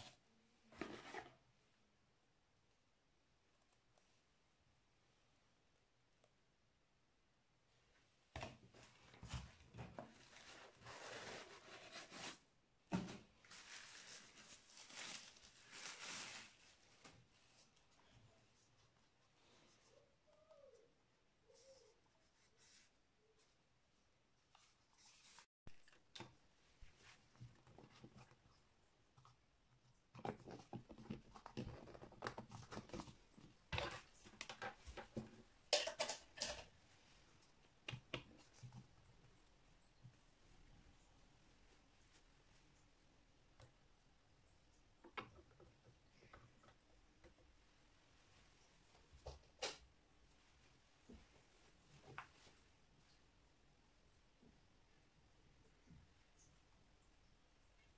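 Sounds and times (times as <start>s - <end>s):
plastic diffuser being handled: 0.0s - 1.4s, 8.4s - 18.0s, 29.2s - 36.8s
wrapping sheet crinkling: 13.4s - 17.7s.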